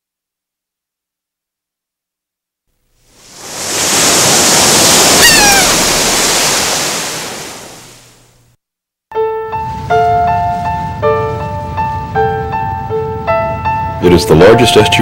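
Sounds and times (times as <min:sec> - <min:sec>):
surf rushing: 0:03.0 - 0:08.2
brief falling cry: 0:04.9 - 0:06.2
piano music: 0:09.1 - 0:15.0.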